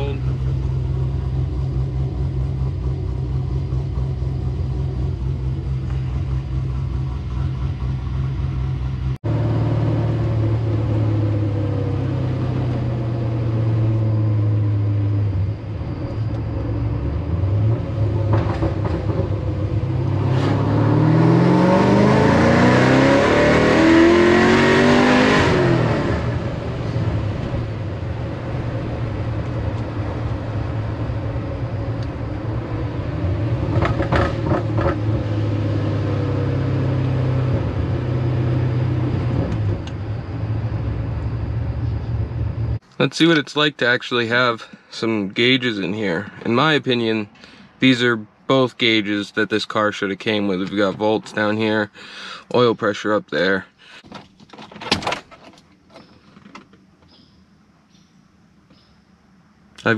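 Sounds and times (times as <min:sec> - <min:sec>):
car engine running and revving: 0:00.0 - 0:42.8.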